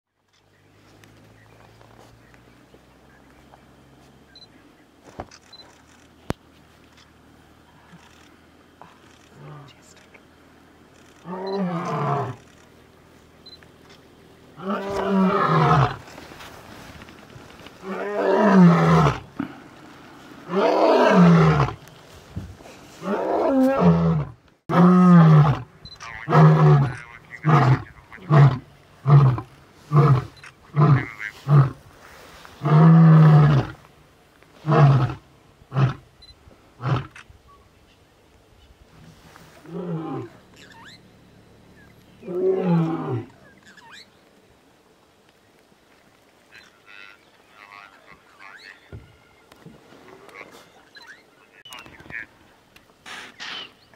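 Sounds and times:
lion roaring: 11.2s - 12.5s, 14.5s - 16.1s, 17.8s - 19.7s, 20.4s - 21.8s, 23.0s - 31.9s, 32.6s - 33.8s, 34.6s - 36.0s, 36.8s - 37.2s, 39.6s - 41.0s, 42.2s - 43.5s
lion grunting: 14.5s - 16.1s, 17.8s - 21.8s, 23.0s - 31.9s, 39.6s - 41.0s, 42.2s - 43.5s.

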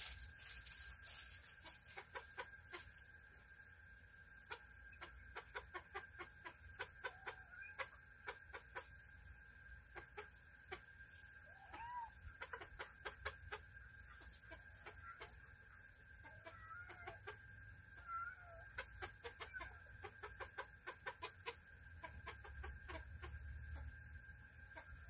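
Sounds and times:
chickens pecking: 0.0s - 3.0s, 4.5s - 9.1s, 11.6s - 15.4s, 18.1s - 24.0s
chicken clucking: 0.1s - 25.0s.

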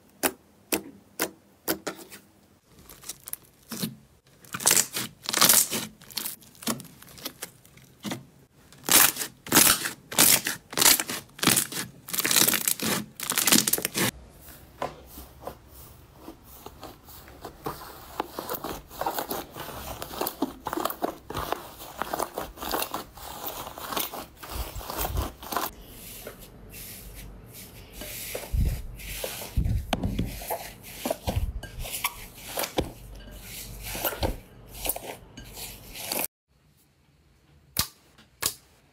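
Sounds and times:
slime crackling and tearing: 2.7s - 8.0s, 8.8s - 14.1s.

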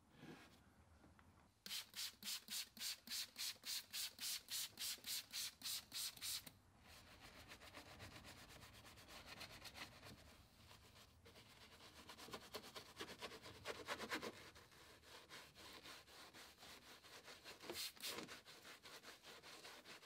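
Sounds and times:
brush scrubbing wet hose: 11.7s - 20.0s.

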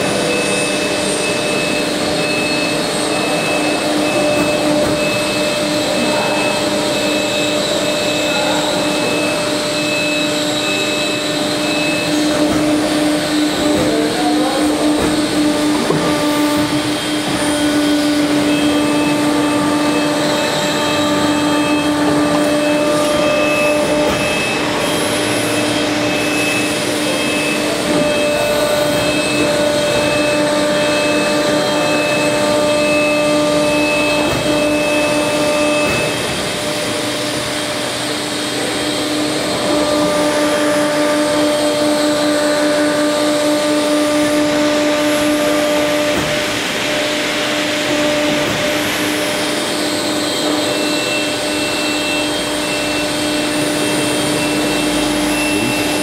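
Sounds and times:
plate bending machine whine: 0.0s - 56.0s.

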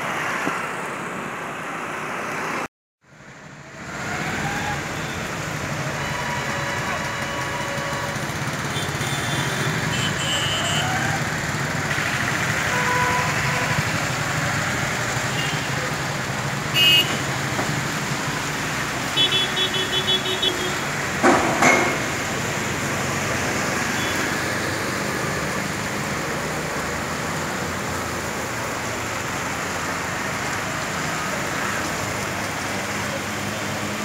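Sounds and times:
heavy rain pouring on street: 3.6s - 21.3s, 22.0s - 34.0s
vehicle horn short toots: 16.8s - 17.2s.

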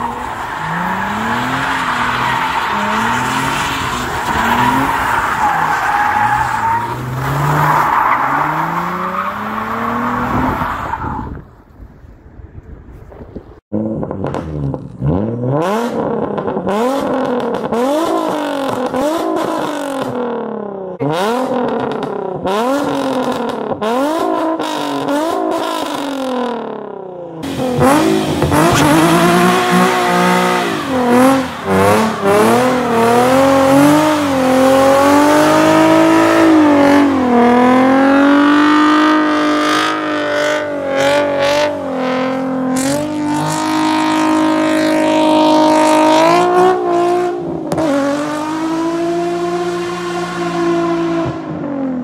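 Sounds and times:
car engine revving: 0.0s - 10.6s, 27.4s - 52.0s.

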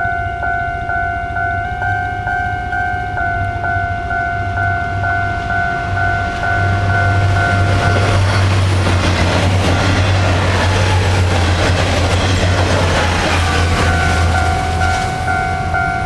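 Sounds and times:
level crossing signal dinging: 0.0s - 8.7s, 13.4s - 16.0s
train wheels clattering on rails: 6.4s - 16.0s.

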